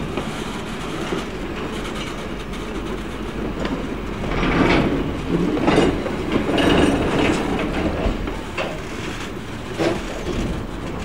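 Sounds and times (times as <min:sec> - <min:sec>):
steel wheels rumbling on track: 0:00.0 - 0:11.0
wheels clunking over rail joints: 0:00.0 - 0:11.0.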